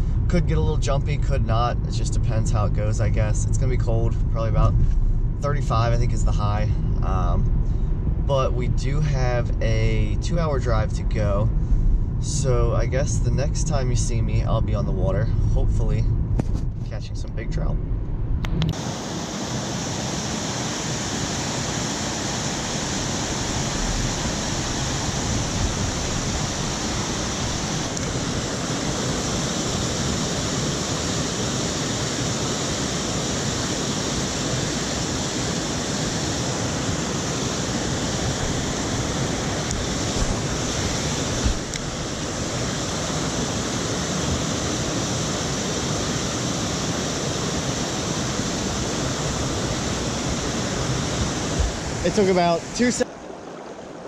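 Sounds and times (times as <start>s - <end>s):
rushing stream water: 18.7s - 54.0s.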